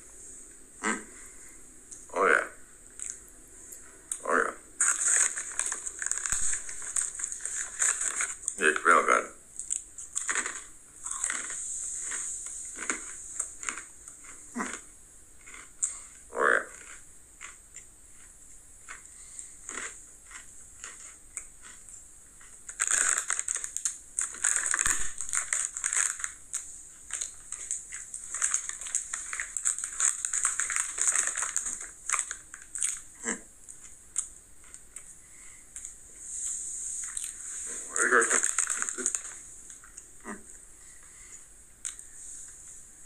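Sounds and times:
plastic snack bag crinkling: 4.8 - 9.0, 9.6 - 14.8, 18.2 - 21.8, 22.4 - 35.0, 35.8 - 40.1.

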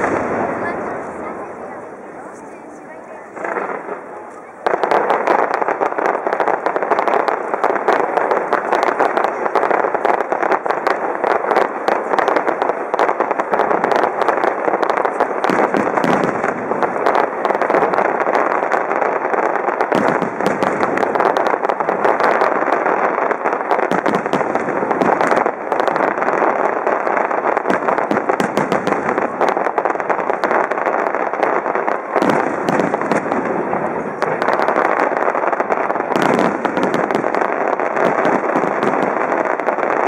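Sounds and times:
fireworks bursting and crackling: 0.0 - 40.0.

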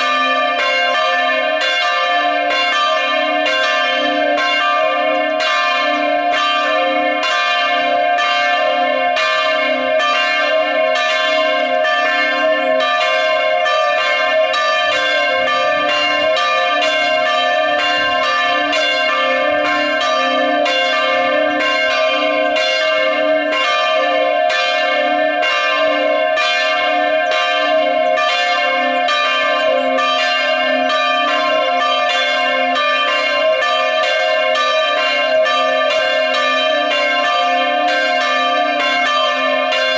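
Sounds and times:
bells ringing in full peal: 0.0 - 39.9.

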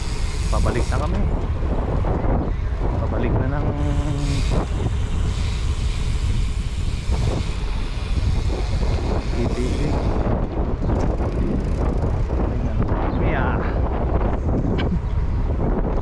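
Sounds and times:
road noise: 0.0 - 16.0
wind rumble on microphone: 0.0 - 16.0.

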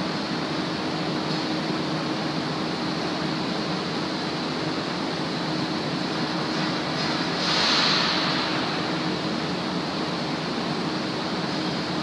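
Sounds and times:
continuous industrial hiss: 0.0 - 12.0.

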